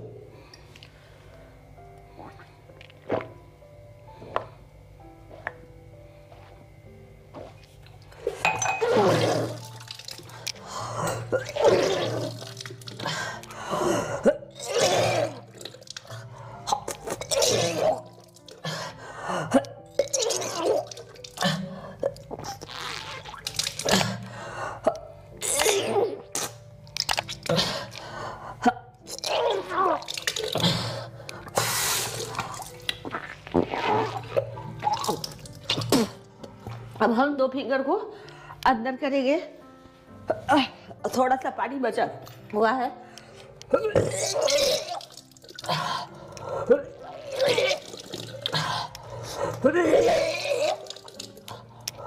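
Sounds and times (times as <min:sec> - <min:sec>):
soft background music: 0:00.0 - 0:52.0
person vomiting and gagging: 0:08.6 - 0:09.8, 0:10.9 - 0:15.8, 0:16.7 - 0:26.6, 0:28.6 - 0:31.0, 0:32.2 - 0:36.3, 0:43.7 - 0:51.6
woman retching: 0:08.6 - 0:09.8, 0:11.0 - 0:13.1, 0:14.2 - 0:15.8, 0:16.7 - 0:18.3, 0:19.5 - 0:27.9, 0:32.2 - 0:36.3, 0:43.7 - 0:48.9, 0:49.6 - 0:51.4
water splashing into basin: 0:29.9 - 0:30.7.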